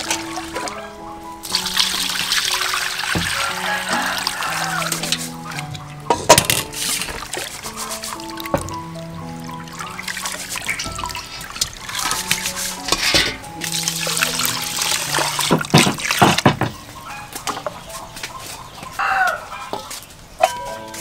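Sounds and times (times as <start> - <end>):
faint background music: 0.0 - 21.0
water splashing into pot of rice: 1.4 - 5.7, 9.6 - 16.6
chicken calling: 3.3 - 5.7, 16.8 - 20.0.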